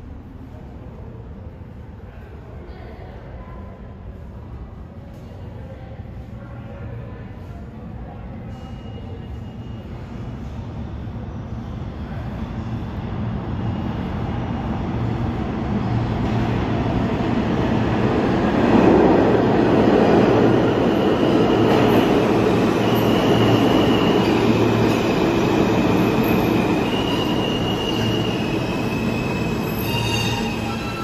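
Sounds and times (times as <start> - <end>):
subway train rumble: 0.0 - 31.0
steel wheel squeal: 26.8 - 31.0.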